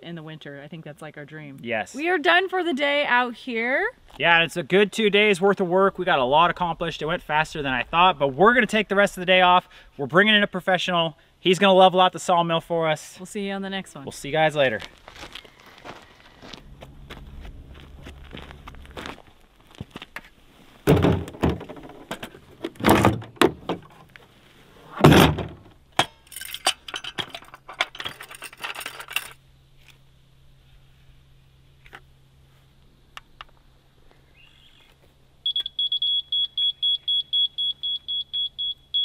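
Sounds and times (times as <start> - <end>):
clattering knocks and thumps: 20.8 - 24.1.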